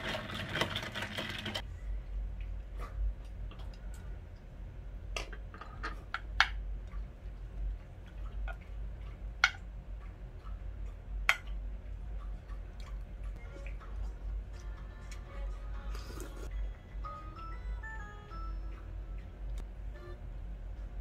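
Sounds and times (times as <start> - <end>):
low steady hum: 1.6 - 21.0.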